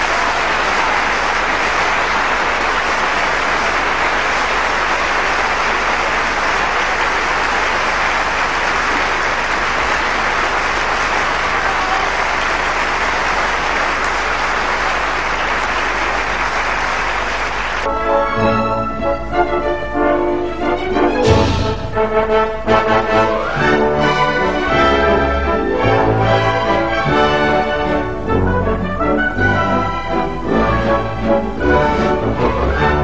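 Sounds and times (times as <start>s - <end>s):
audience applauding: 0.0s - 18.0s
music: 17.9s - 33.0s.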